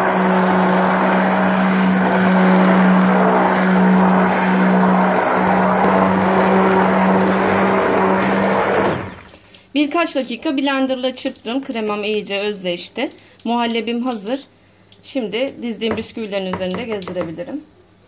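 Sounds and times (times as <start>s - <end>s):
stick blender whirring: 0.0s - 9.4s.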